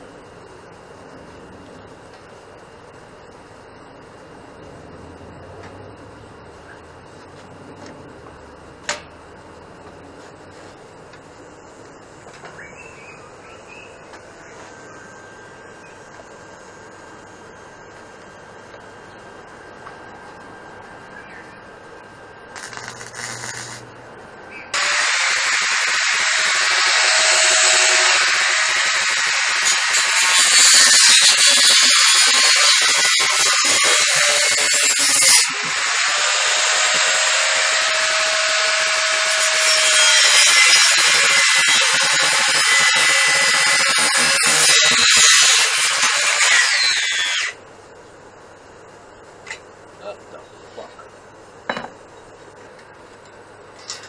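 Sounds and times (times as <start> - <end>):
angle grinder grinding metal: 22.6 - 23.8, 24.8 - 47.6.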